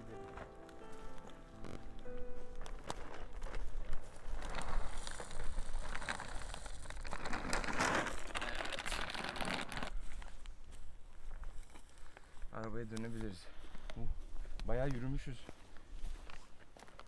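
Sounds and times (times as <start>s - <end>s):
sack crinkling: 0.0s - 10.4s
kibble pouring onto ground: 2.7s - 9.9s.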